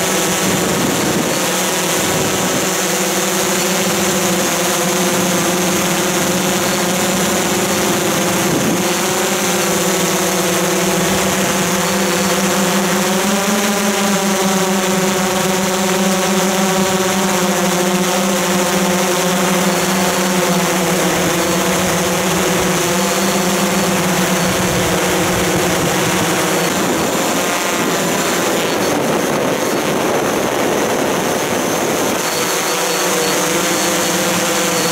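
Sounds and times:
drone propellers humming: 0:00.0 - 0:34.9.

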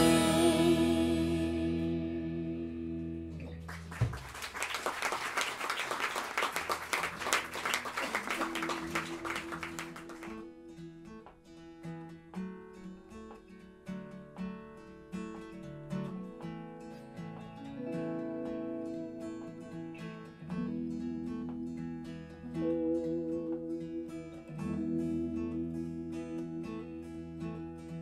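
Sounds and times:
guitar chord: 0:00.0 - 0:03.6, 0:17.0 - 0:28.0
acoustic guitar picking: 0:00.0 - 0:03.9, 0:07.1 - 0:28.0
audience applause: 0:03.6 - 0:10.4.

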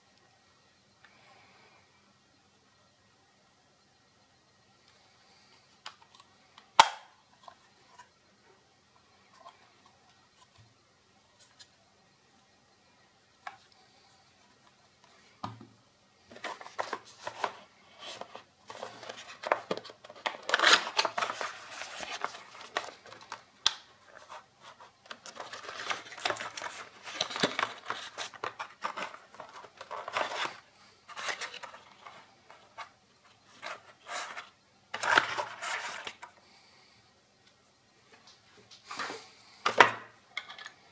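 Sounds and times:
cardboard rustling and scraping: 0:16.3 - 0:23.4, 0:24.0 - 0:36.3.

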